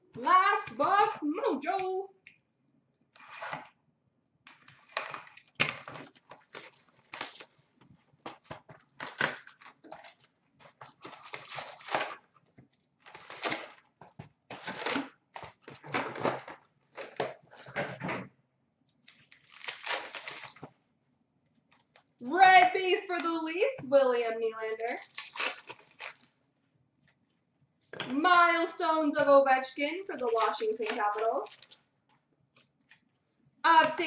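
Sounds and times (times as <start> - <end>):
card pack wrappers tearing and crinkling: 4.5 - 7.6, 8.3 - 12.4, 13.0 - 17.3, 19.0 - 20.7, 24.6 - 26.4, 30.0 - 31.8.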